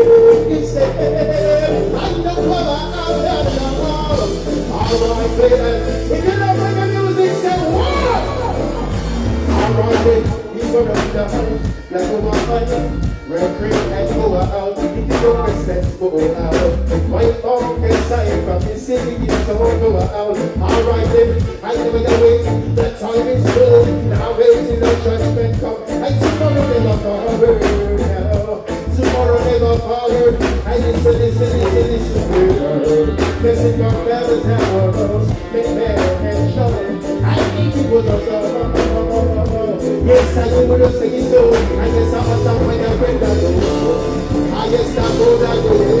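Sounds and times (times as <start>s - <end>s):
man singing into microphone: 0.0s - 46.0s
reggae backing track: 0.0s - 46.0s.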